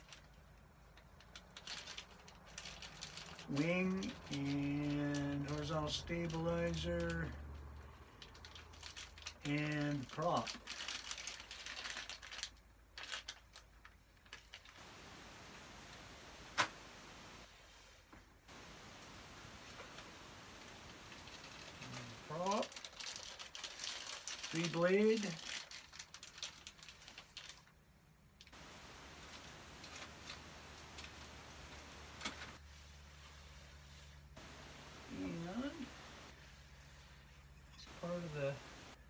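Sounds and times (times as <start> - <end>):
packaging rustling: 0.0 - 7.4, 8.2 - 14.8, 19.5 - 27.8, 28.4 - 32.6
plastic bag crinkling: 0.0 - 7.4, 8.1 - 14.8, 19.8 - 27.8, 28.4 - 32.6, 34.4 - 36.4
faint steady hiss: 13.5 - 26.2, 26.8 - 39.0.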